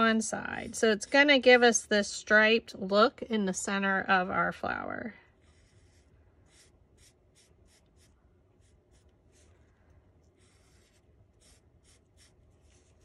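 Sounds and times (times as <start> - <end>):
marker strokes on paper: 0.0 - 1.8, 5.3 - 13.0.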